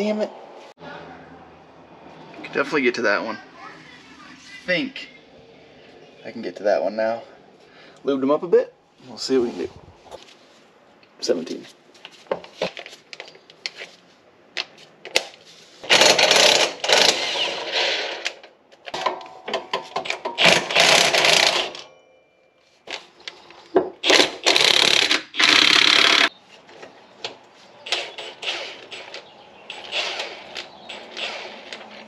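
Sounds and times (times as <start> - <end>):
hand tools clicking and clanking: 18.2 - 21.9, 22.9 - 32.0.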